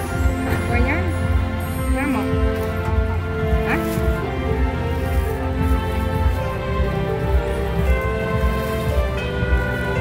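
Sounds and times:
held musical tones: 0.0 - 10.0
pulsing bass: 0.0 - 10.0.

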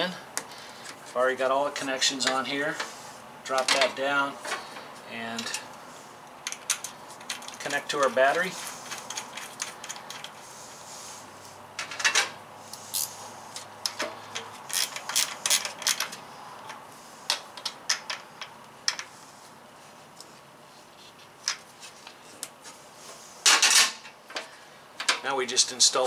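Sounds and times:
small clicks and metallic knocks: 6.3 - 7.8, 8.8 - 10.4, 13.6 - 19.1, 23.5 - 25.3.

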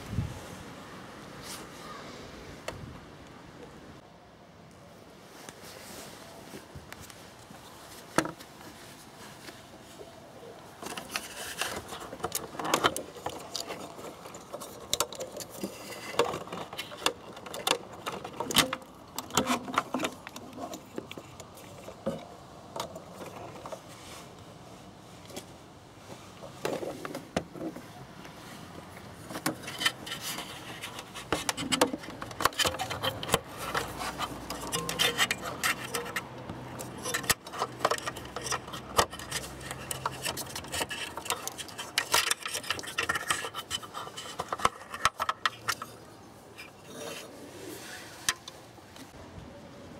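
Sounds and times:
hands rubbing plastic and rubber: 10.8 - 22.2, 26.4 - 49.2.

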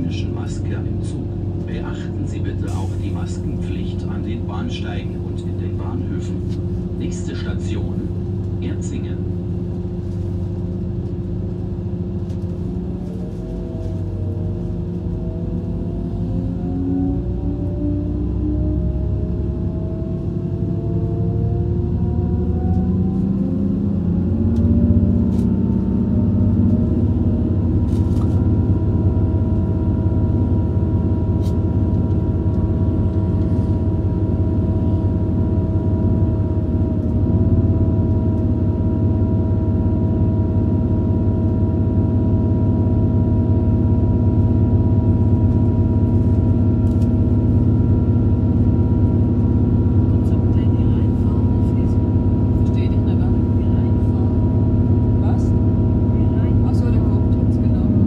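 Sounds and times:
train drive whine: 0.0 - 58.0
train running rumble: 0.0 - 58.0.

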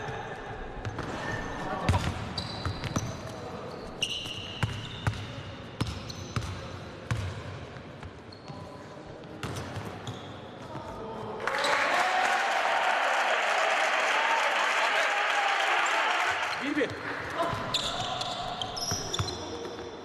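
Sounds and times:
sneaker squeaks: 0.9 - 7.3, 8.2 - 8.8, 9.4 - 10.7, 17.3 - 20.0.

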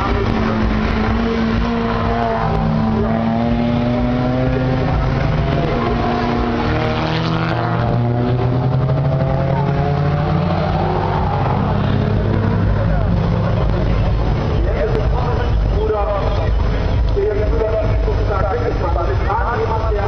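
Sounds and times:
race car engines accelerating: 0.0 - 20.0.

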